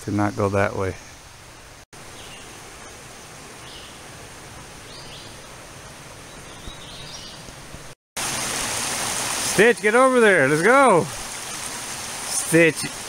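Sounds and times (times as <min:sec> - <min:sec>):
woodland background hiss: 0:00.0 - 0:13.0
creek running over rocks: 0:07.2 - 0:13.0.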